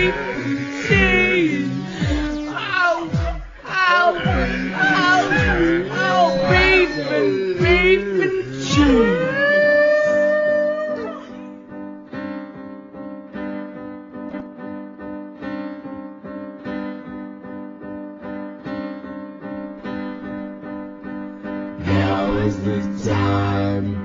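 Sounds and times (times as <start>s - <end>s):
held low note: 0.0s - 3.6s
held sung note: 0.0s - 11.4s.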